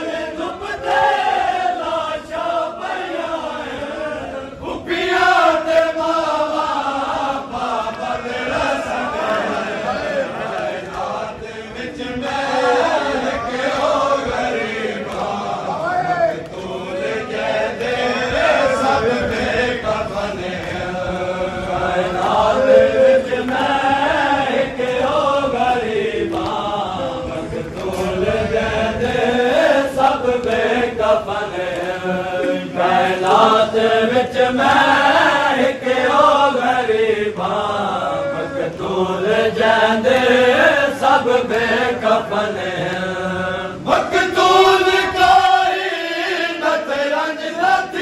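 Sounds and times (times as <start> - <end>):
men chanting a lament: 0.0 - 48.0
hands slapping chests: 26.3 - 26.6.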